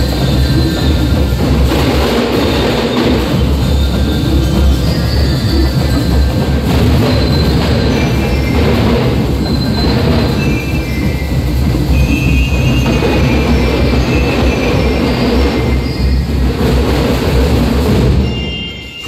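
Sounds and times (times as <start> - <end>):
drum line playing: 0.0 - 19.0.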